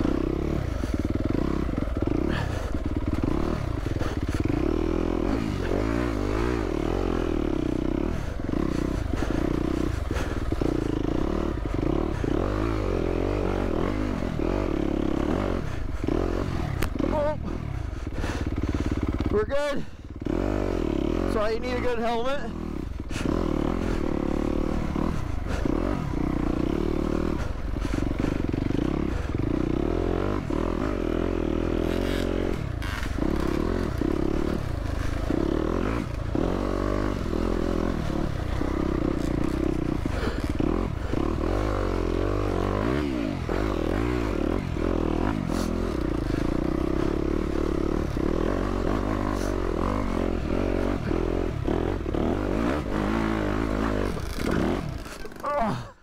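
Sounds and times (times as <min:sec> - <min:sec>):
dirt bike engine revving: 0:00.0 - 0:56.0
knocks and clatter from bike: 0:54.0 - 0:55.4.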